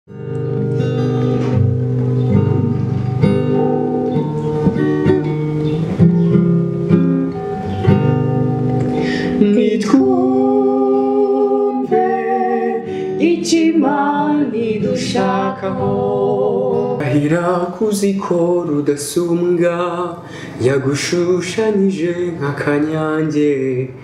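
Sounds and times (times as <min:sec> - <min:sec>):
acoustic guitar picked: 0:00.1 - 0:24.0
man and woman singing: 0:09.0 - 0:24.0.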